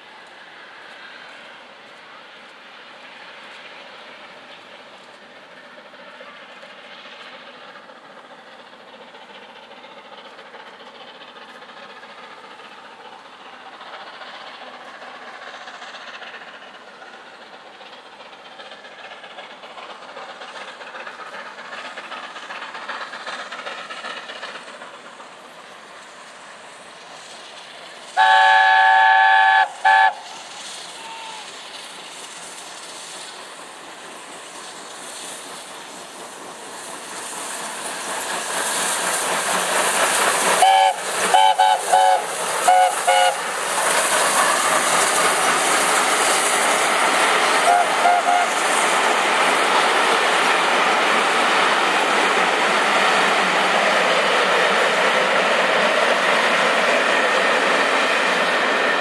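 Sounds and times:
train running noise: 0:00.0 - 0:59.0
steam locomotive chime whistle: 0:28.2 - 0:30.3, 0:40.6 - 0:43.4, 0:47.6 - 0:48.6.

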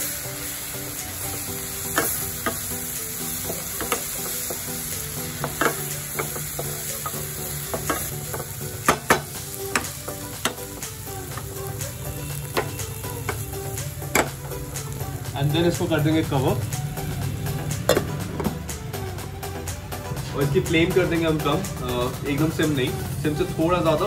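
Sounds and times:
frying sizzle: 0:00.0 - 0:19.8
spatula scraping and knocking pan: 0:05.3 - 0:10.7.

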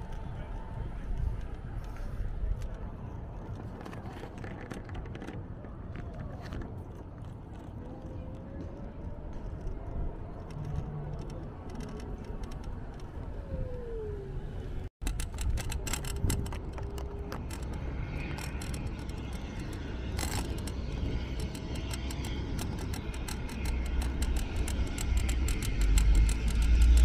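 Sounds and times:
wind rumble on microphone: 0:00.0 - 0:27.0
car traffic: 0:06.8 - 0:27.0
rapid clicks: 0:15.0 - 0:27.0.

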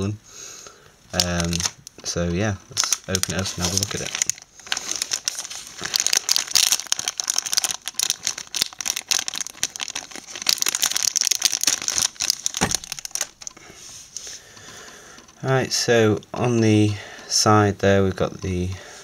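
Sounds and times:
plastic bag crinkling: 0:01.2 - 0:13.8.

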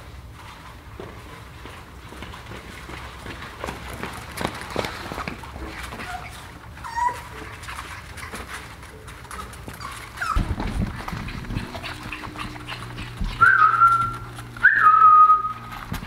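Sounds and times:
paws scrambling on hard floor: 0:00.0 - 0:16.0
puppies whimpering: 0:05.6 - 0:16.0
whistled note: 0:13.4 - 0:15.7.

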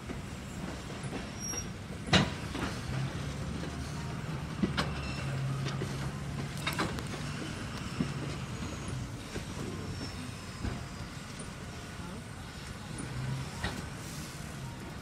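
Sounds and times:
train wheels clacking over rail joints: 0:00.0 - 0:11.7.

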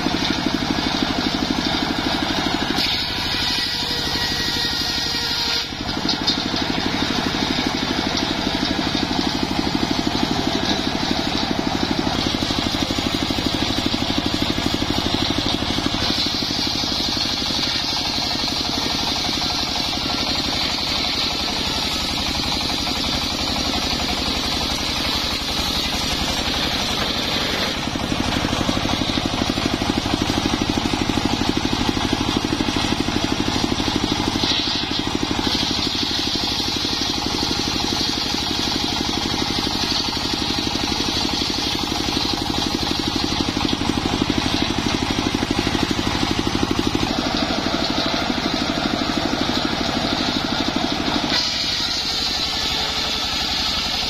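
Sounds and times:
circular saw engine running: 0:00.0 - 0:54.0
saw blade cutting wood: 0:00.0 - 0:54.0.

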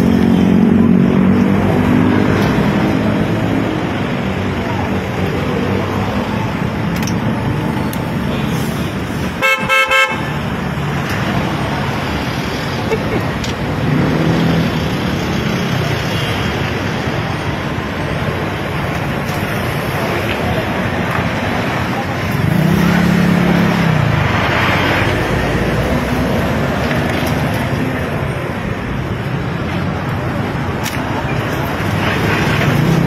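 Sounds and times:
cars passing on busy street: 0:00.0 - 0:33.0.

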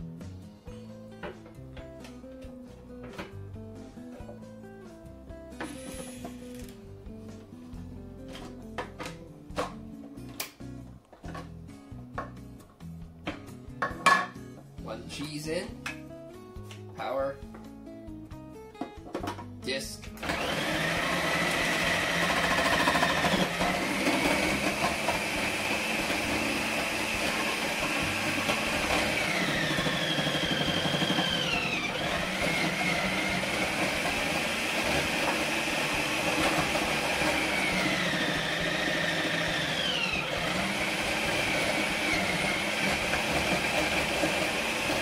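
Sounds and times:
food processor motor whine: 0:20.2 - 0:45.0.

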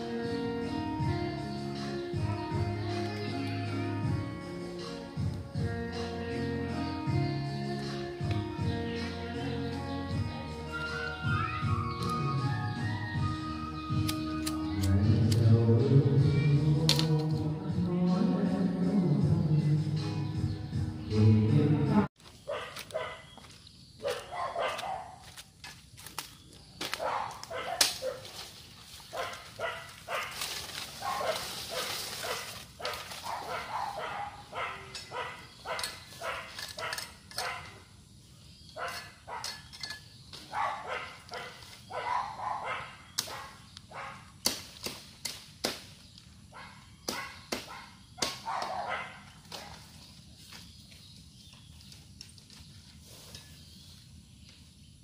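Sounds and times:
blade chopping bamboo: 0:44.4 - 0:46.0.

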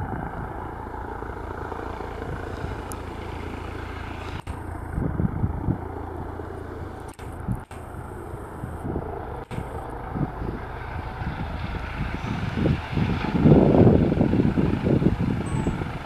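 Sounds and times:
helicopter rotor and turbine: 0:00.0 - 0:16.0.

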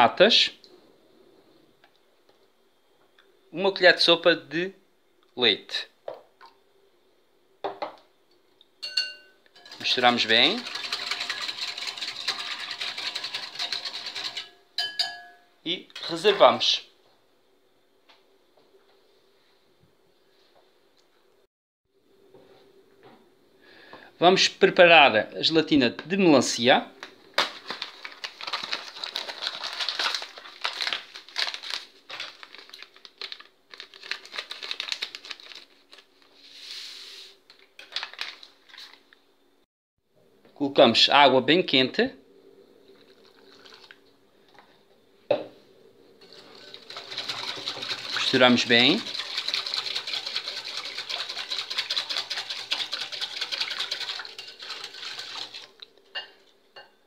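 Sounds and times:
whisk clinking in glass bowl: 0:08.8 - 0:16.2, 0:46.2 - 0:56.9
sachet crinkling: 0:27.4 - 0:36.3, 0:37.6 - 0:39.0.

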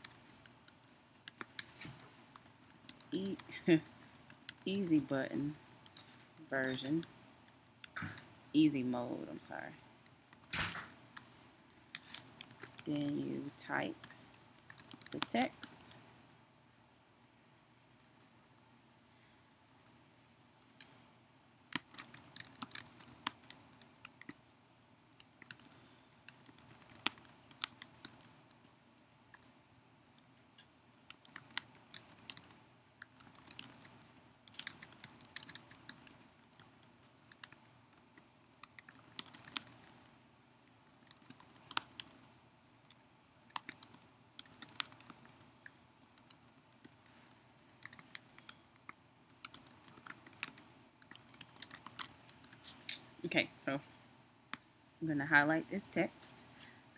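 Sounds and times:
computer keyboard typing: 0:00.0 - 0:07.1, 0:10.0 - 0:16.0, 0:20.5 - 0:21.0, 0:21.7 - 0:24.4, 0:25.1 - 0:28.6, 0:30.9 - 0:40.1, 0:40.9 - 0:52.7.

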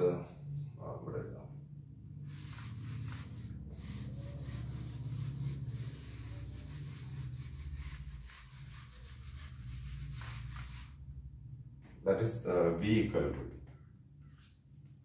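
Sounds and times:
duster rubbing a whiteboard: 0:02.2 - 0:11.2.

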